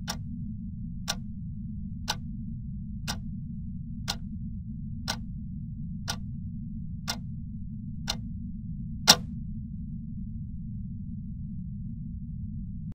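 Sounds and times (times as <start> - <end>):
sharp clock ticks: 0.0 - 0.2, 9.1 - 9.3
steady low hum: 0.0 - 12.9.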